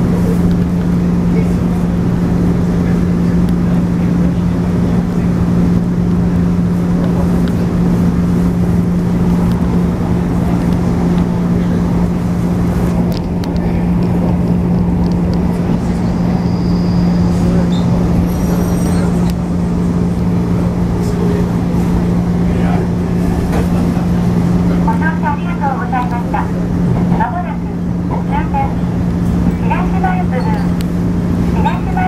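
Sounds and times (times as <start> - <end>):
train motor hum: 0.0 - 32.0
wheel and rail rumble: 0.0 - 32.0
high-pitched squeals: 15.7 - 21.2.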